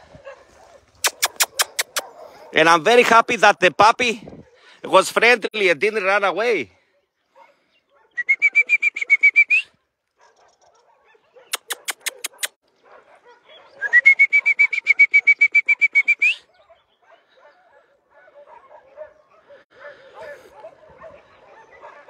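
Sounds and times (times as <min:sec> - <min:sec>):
sharp tongue clicks: 0:01.0 - 0:02.1, 0:11.5 - 0:12.6
rapid trilled whistle: 0:08.2 - 0:09.7, 0:13.8 - 0:16.4.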